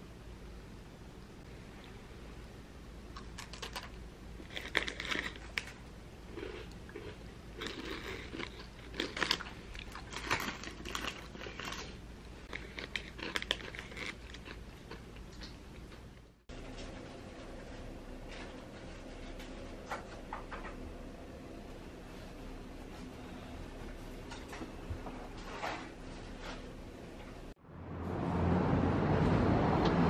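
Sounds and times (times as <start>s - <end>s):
crunching and chewing biscuit: 3.1s - 16.0s
foil snack bag crinkling: 3.2s - 5.8s, 7.6s - 14.6s.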